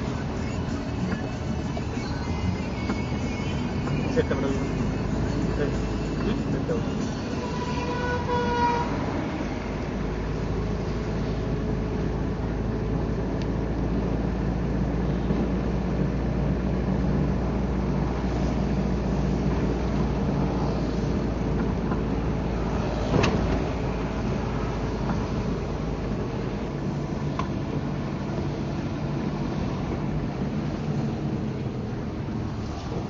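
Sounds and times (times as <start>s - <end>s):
vehicle engine hum: 0.0s - 33.0s
tyre noise on wet road: 13.4s - 33.0s.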